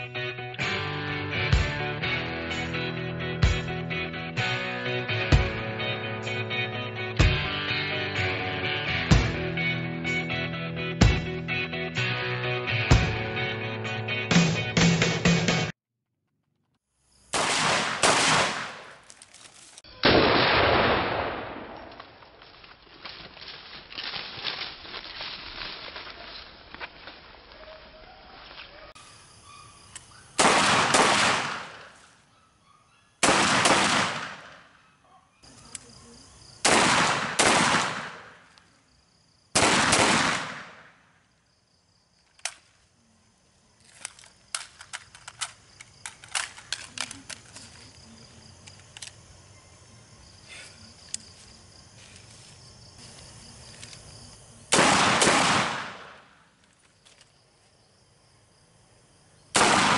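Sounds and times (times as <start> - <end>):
gunshots echoing: 17.3 - 19.0, 20.0 - 22.2, 30.4 - 32.0, 33.2 - 34.8, 36.6 - 38.5, 39.6 - 41.0, 54.7 - 56.4, 59.6 - 59.9.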